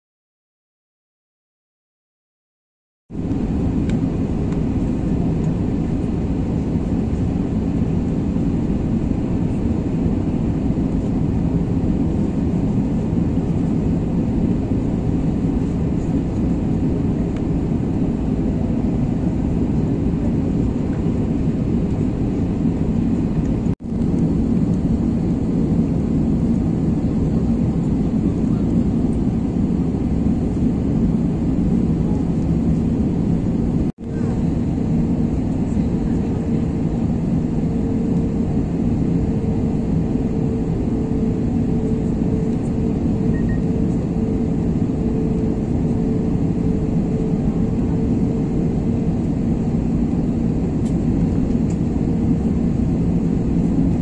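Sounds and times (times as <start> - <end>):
jet engine and airflow rumble: 3.1 - 54.0.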